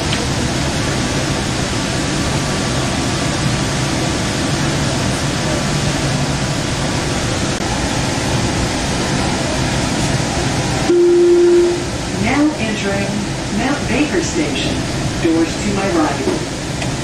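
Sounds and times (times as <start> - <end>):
train wheels rumbling on rail: 0.0 - 10.9, 11.5 - 17.0
low hum: 10.8 - 13.7
faint steady tone: 10.9 - 11.8.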